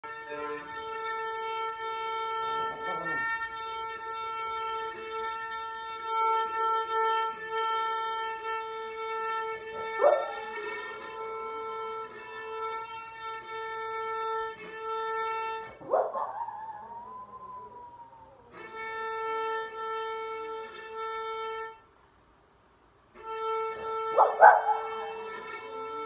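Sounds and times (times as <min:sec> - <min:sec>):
cello bowed note: 0:00.0 - 0:21.9, 0:23.1 - 0:26.0
dog howling: 0:02.7 - 0:03.3, 0:09.8 - 0:10.8, 0:15.6 - 0:18.8, 0:24.1 - 0:25.6.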